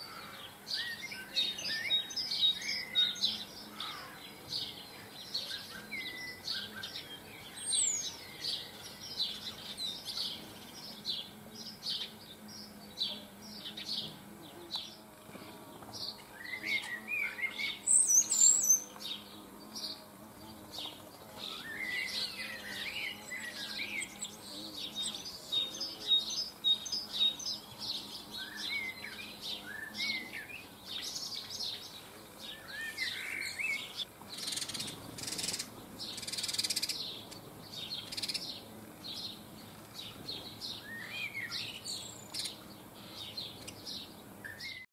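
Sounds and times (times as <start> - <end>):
small birds chirping: 0.0 - 44.9
lower bird twittering: 16.0 - 44.9.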